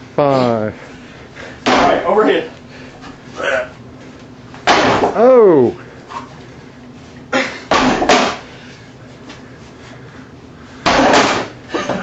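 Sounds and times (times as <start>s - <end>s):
man breathing forcefully: 0.8s - 1.7s.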